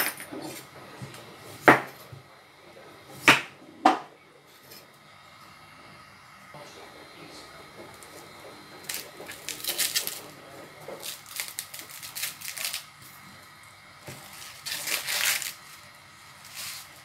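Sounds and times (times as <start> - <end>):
corn husks tearing: 8.9 - 10.3, 11.0 - 12.9, 14.2 - 15.7.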